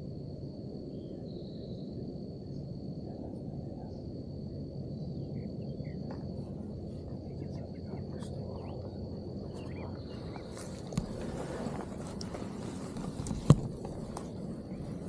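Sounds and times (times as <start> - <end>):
insect trilling: 0.0 - 15.0
bird chirps: 5.0 - 6.1, 7.4 - 10.8.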